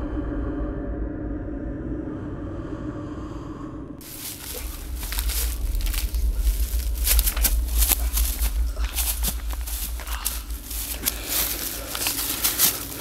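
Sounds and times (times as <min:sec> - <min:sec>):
constant low rumble: 0:00.0 - 0:13.0
muffled low drone: 0:00.0 - 0:13.0
feet crunching dry leaves: 0:04.0 - 0:13.0.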